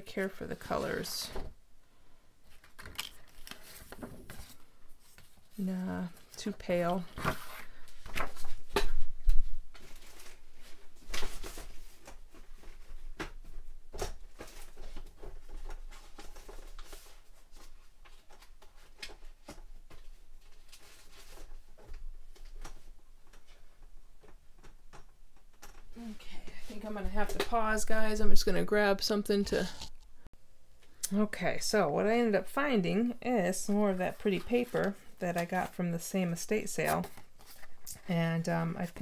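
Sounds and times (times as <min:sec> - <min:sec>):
paper rustling and shuffling: 0:02.5 - 0:24.8, 0:36.7 - 0:38.1.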